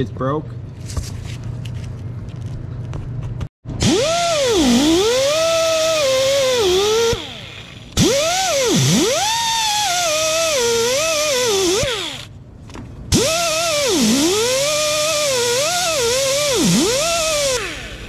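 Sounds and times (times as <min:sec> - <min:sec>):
power driver motor whining: 0:03.8 - 0:12.3, 0:13.1 - 0:18.0.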